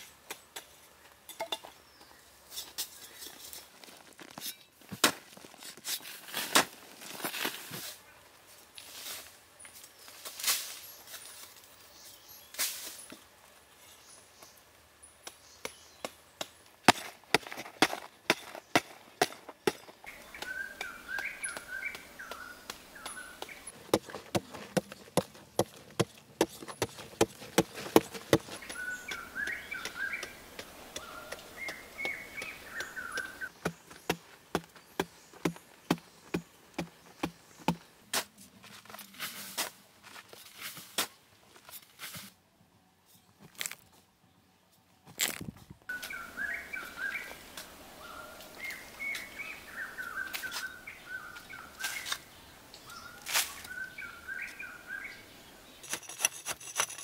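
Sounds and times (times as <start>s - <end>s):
hoe chopping into sandy soil: 15.3s - 38.3s
birds chirping: 17.4s - 38.1s, 45.9s - 57.0s.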